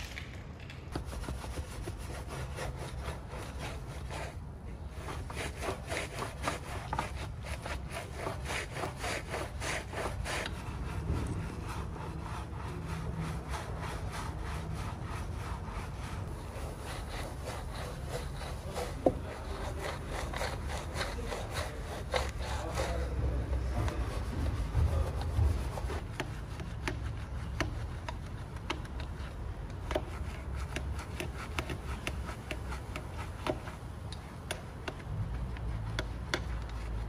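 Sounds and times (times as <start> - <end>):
steady low hum: 0.0 - 37.0
brush scrubbing wet wheel: 0.9 - 37.0.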